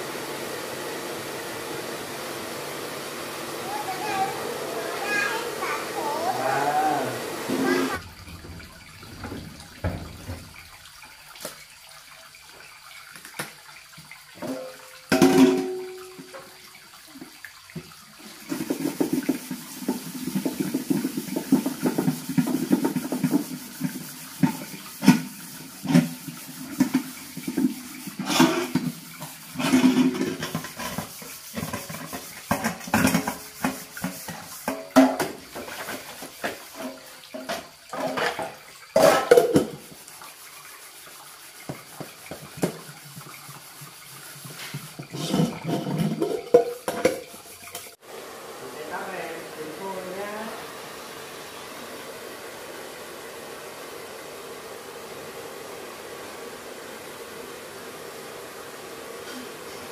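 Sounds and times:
water splashing and sloshing: 7.4 - 49.3
knocks and clatter: 8.0 - 10.7.

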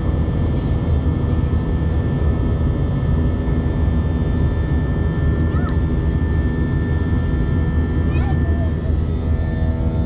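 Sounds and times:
jet engines heard in cabin: 0.0 - 10.0
whining engine tones: 4.3 - 10.0.

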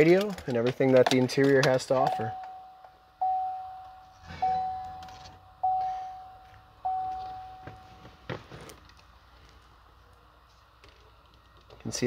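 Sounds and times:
dashboard warning chime bong: 2.0 - 8.3.

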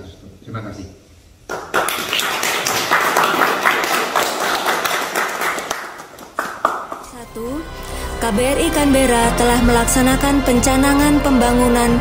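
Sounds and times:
people applauding: 1.5 - 7.2.

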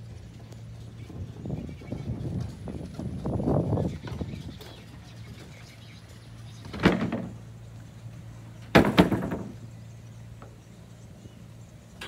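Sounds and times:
low steady hum: 0.0 - 12.0
sharp knocks: 8.7 - 9.6.

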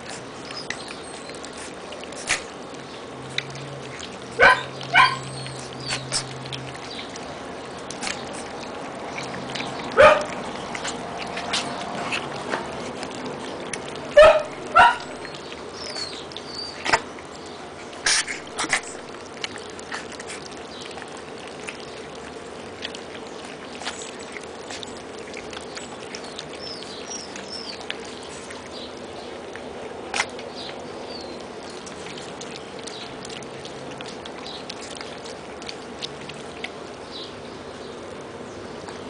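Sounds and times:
puppies crunching kibble: 0.0 - 39.0
puppy yelps: 4.4 - 5.7, 9.9 - 10.4, 14.1 - 15.1.

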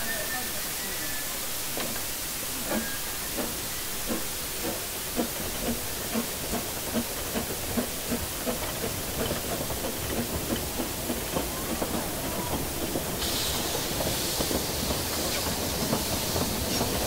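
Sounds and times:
steam hissing: 0.0 - 17.0
steam locomotive exhaust chuffs: 1.7 - 17.0.

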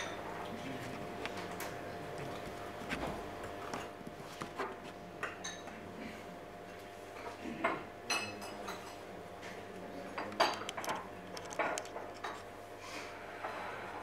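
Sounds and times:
tableware clinking: 0.0 - 0.3, 5.2 - 5.8, 8.1 - 9.0, 10.2 - 12.4.

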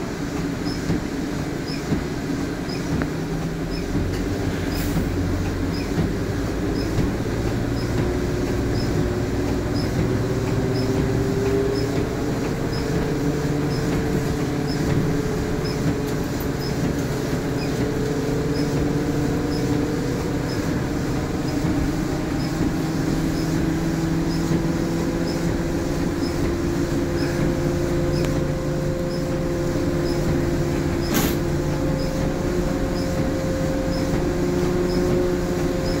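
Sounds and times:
bus engine rumble with whine: 0.0 - 36.0
sharp click: 31.0 - 31.4.

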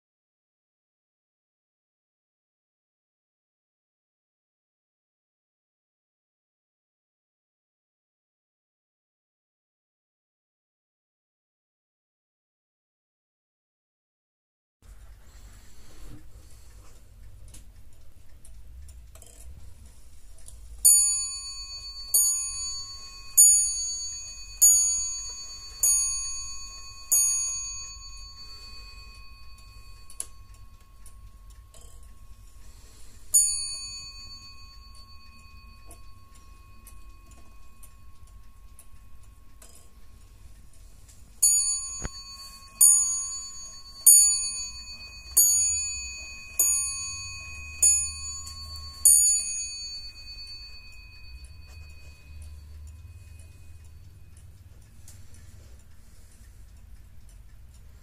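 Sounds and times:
faint clock ticking: 14.8 - 58.0
wall clock striking bell: 20.8 - 56.4.

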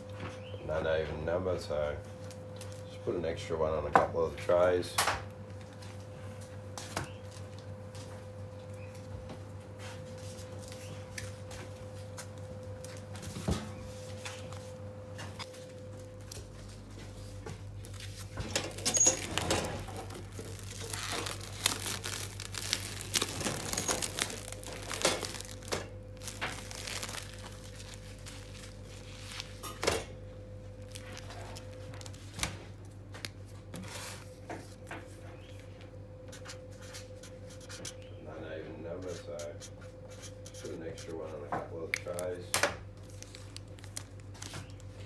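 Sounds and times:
low hum: 7.6 - 33.5
cling film crinkling and tearing: 17.8 - 29.8, 30.7 - 33.4, 41.2 - 45.0.

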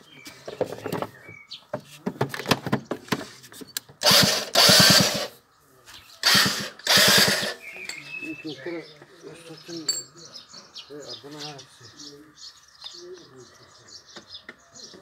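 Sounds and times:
electric starter cranking: 4.0 - 5.3, 6.2 - 7.6.

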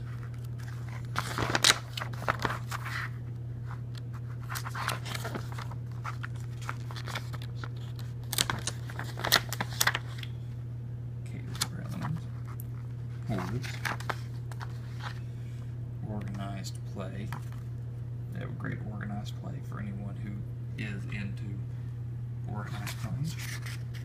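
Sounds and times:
paper rustling: 0.0 - 10.3, 11.5 - 15.2, 22.6 - 24.0.

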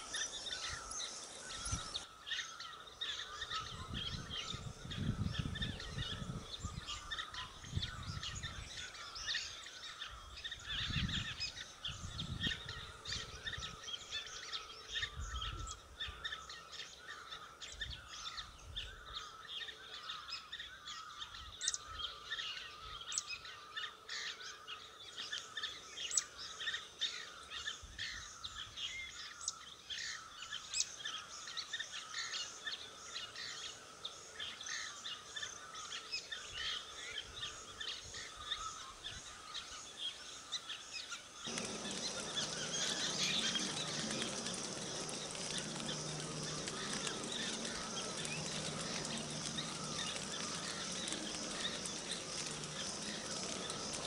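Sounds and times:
small birds chirping: 0.0 - 54.0
faint steady hum: 41.4 - 54.0.

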